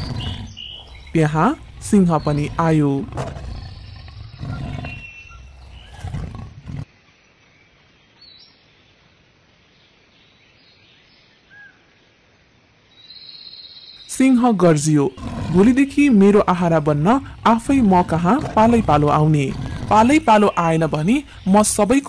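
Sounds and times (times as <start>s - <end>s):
faint chirps: 0.0s - 6.8s
lion roaring: 0.0s - 6.9s, 14.6s - 22.0s
faint steady hiss: 6.8s - 14.3s.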